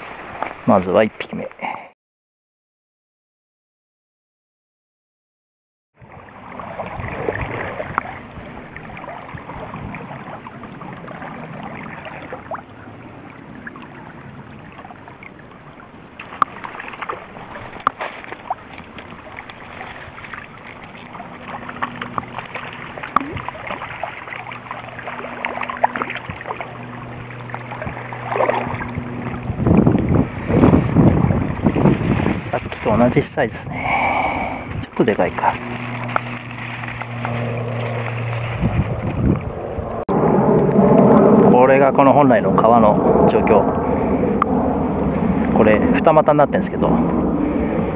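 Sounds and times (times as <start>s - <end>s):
small stream running: 0.0s - 1.9s, 6.0s - 40.0s
wind buffeting microphone: 6.0s - 15.8s, 16.4s - 47.9s.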